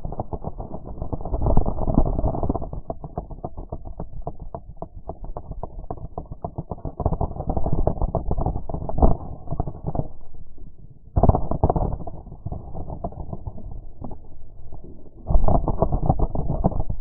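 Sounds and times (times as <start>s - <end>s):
camera housing rubbing through dry grass: 15.2s - 17.0s.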